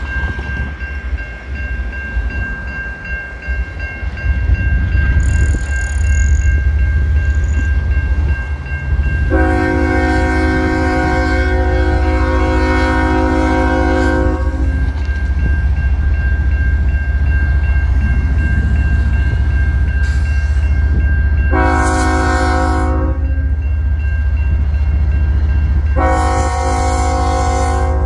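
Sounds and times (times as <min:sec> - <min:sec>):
crossing bell ringing: 0:00.0 - 0:28.0
diesel locomotive rumble: 0:00.0 - 0:28.0
locomotive air horn blasts: 0:09.3 - 0:14.9, 0:21.5 - 0:23.3, 0:26.0 - 0:28.0.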